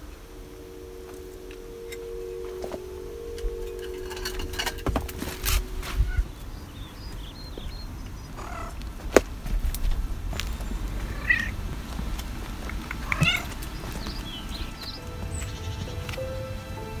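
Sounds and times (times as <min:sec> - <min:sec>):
cat meowing: 0:13.0 - 0:13.5.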